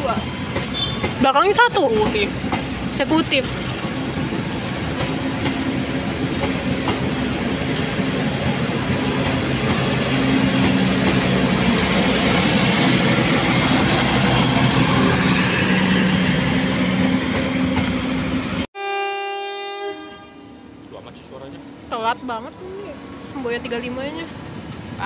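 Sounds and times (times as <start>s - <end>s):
train wheels rattling on rail: 0.0s - 18.6s, 21.0s - 25.0s
locomotive horn: 18.8s - 20.8s.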